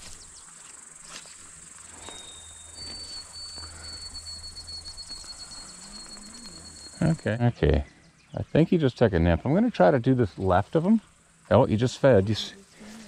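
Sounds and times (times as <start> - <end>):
insects trilling: 0.0 - 13.0
high steady whistle-like note: 2.0 - 7.4.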